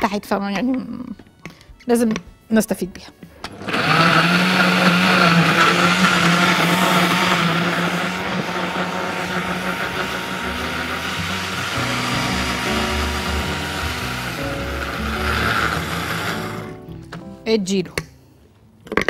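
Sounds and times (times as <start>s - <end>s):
electric blender running: 3.4s - 16.9s.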